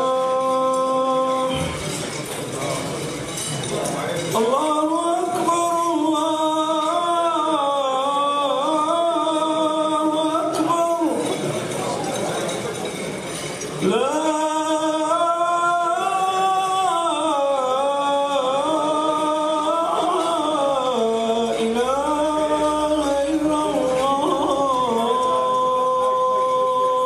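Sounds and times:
man chanting over loudspeakers: 0:00.0 - 0:27.0.

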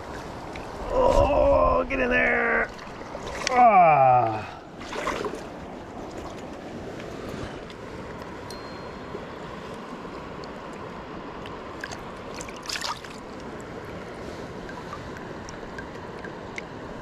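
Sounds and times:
river water flowing: 0:00.0 - 0:01.0, 0:01.6 - 0:17.0
short water splash: 0:04.8 - 0:05.4, 0:11.8 - 0:13.2.

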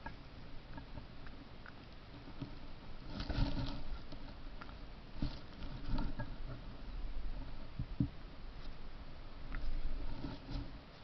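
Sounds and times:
fur rustling against microphone: 0:09.6 - 0:11.0.

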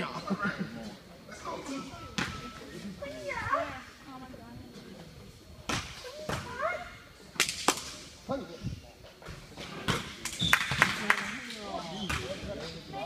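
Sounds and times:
sharp smacks in gymnasium: 0:07.4 - 0:08.0, 0:09.8 - 0:11.4.

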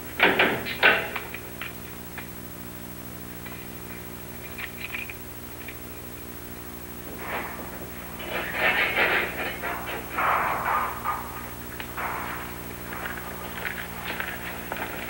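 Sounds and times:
low electrical hum: 0:00.0 - 0:15.0
loud noisy sound: 0:06.9 - 0:15.0.

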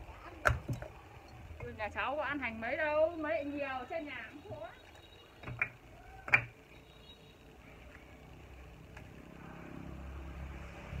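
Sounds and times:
bricks clacking on a stack: 0:05.4 - 0:06.6
vehicle low rumble: 0:07.4 - 0:11.0.

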